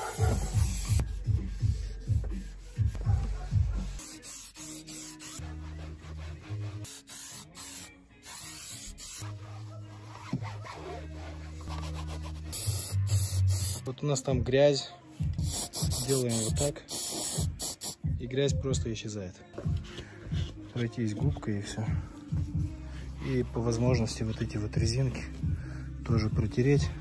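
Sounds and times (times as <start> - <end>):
sponge rubbing on plastic: 0.0 - 7.3, 8.4 - 13.8
background music: 0.0 - 27.0.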